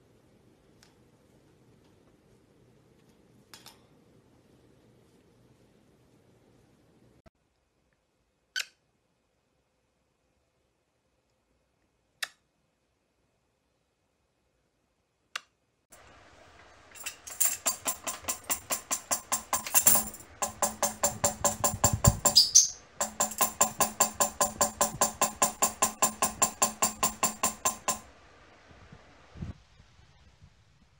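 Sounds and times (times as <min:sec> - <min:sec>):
tambourine jingles rattling: 0:17.0 - 0:28.0
bird beak striking tambourine: 0:17.2 - 0:28.0.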